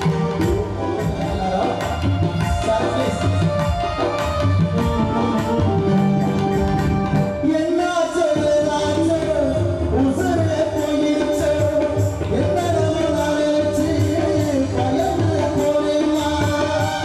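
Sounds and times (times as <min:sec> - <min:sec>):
drum beat: 0:00.0 - 0:07.4
wavering lead melody: 0:00.0 - 0:17.0.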